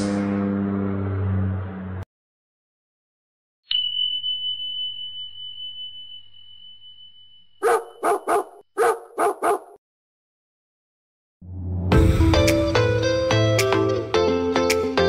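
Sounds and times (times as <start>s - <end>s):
chime ringing: 3.7s - 8.2s
dog barking: 7.6s - 9.8s.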